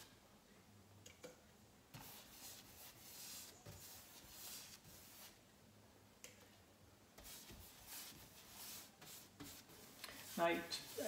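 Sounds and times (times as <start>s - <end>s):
paintbrush swishing: 2.0s - 5.4s, 7.2s - 11.0s.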